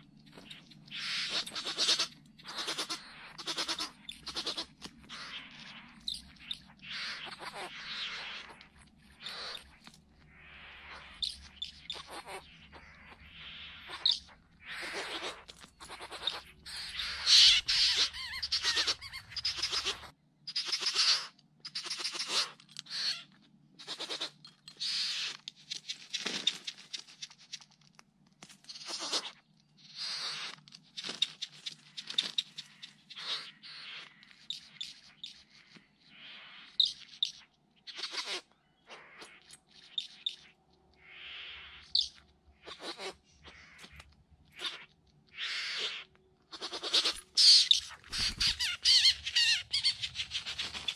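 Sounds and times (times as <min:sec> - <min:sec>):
birds giving rasping hissing calls: 0:00.9 - 0:05.8, 0:06.8 - 0:08.6, 0:09.2 - 0:09.6, 0:10.3 - 0:25.3, 0:28.8 - 0:29.3, 0:30.0 - 0:30.5, 0:31.3 - 0:35.2, 0:37.9 - 0:44.0, 0:44.6 - 0:50.9.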